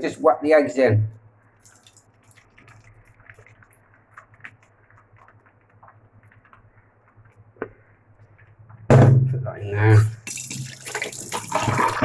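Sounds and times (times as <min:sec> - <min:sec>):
eggs frying in a pan: 0:01.4 - 0:08.6, 0:10.2 - 0:12.0.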